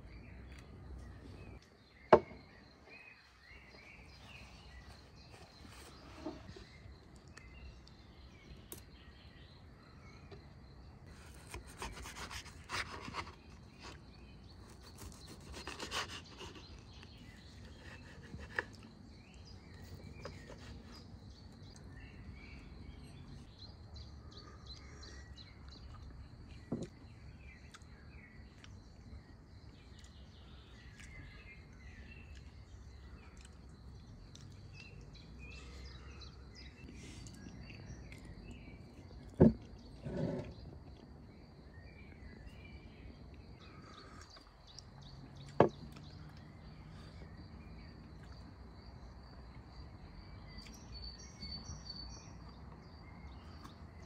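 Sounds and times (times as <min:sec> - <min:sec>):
birds chirping: 0:00.0 - 0:54.0
knife scraping meat off skewer: 0:14.6 - 0:16.8.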